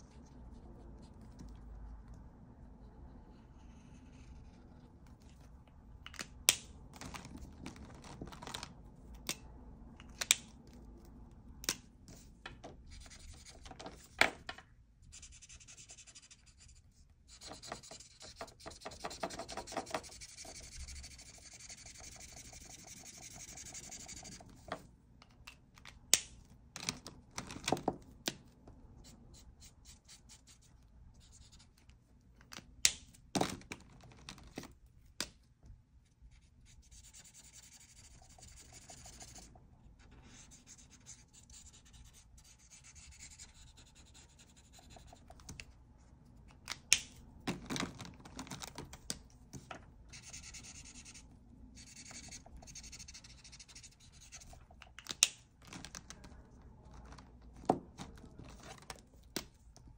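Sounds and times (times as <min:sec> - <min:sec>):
marker tips scratching paper: 0:12.8 - 0:14.1, 0:15.1 - 0:24.7, 0:36.3 - 0:39.5, 0:40.2 - 0:45.5, 0:50.1 - 0:54.6
markers knocking on desk: 0:17.5 - 0:20.1.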